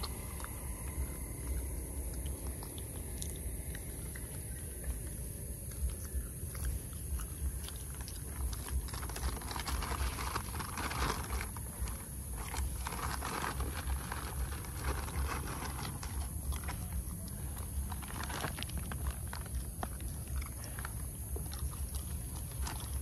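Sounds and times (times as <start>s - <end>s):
steady low rumble: 0.0s - 23.0s
close rustling: 6.7s - 23.0s.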